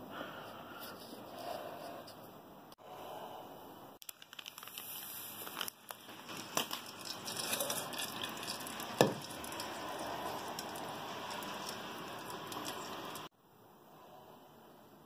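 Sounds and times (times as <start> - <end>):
fat sizzling and popping: 4.0 - 13.3.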